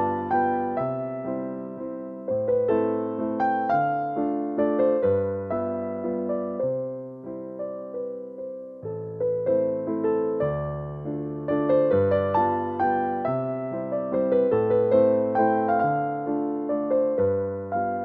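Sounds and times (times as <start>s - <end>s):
keyboard melody: 0.0s - 18.0s.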